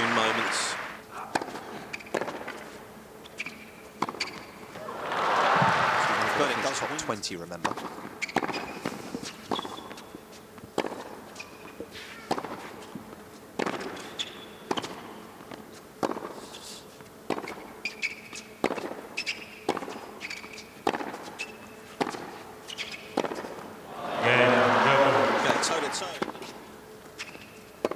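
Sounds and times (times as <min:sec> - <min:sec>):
shoes squeaking on court: 0:00.0 - 0:04.8, 0:06.1 - 0:27.9
tennis ball bouncing: 0:00.8 - 0:02.7, 0:07.6 - 0:10.0, 0:10.6 - 0:11.7, 0:12.3 - 0:12.8, 0:13.6 - 0:16.4, 0:17.3 - 0:27.9
racket striking tennis ball: 0:20.8 - 0:21.3, 0:23.1 - 0:24.0, 0:24.9 - 0:26.6.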